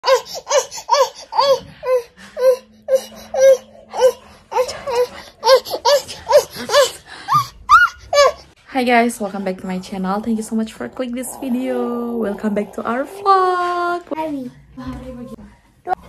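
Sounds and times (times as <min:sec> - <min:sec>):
baby laughing in high squeals: 0:05.4 - 0:08.5.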